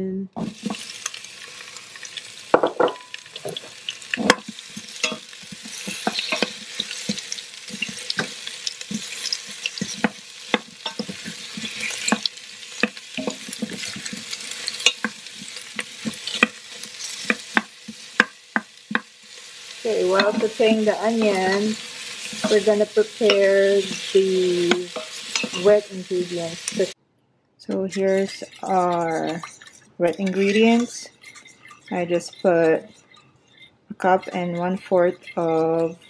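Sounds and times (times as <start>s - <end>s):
onions sizzling in oil: 0.4s - 27.0s
wooden spoon scraping pot: 3.4s - 19.1s, 19.7s - 27.0s, 27.7s - 36.0s.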